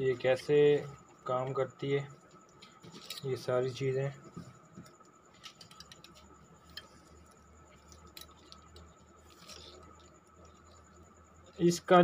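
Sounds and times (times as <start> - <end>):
light clicks and scrapes of parts: 0.8 - 12.0.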